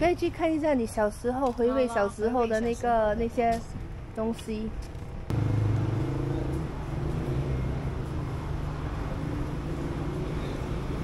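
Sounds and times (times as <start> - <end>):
vehicle engine humming: 4.8 - 11.0.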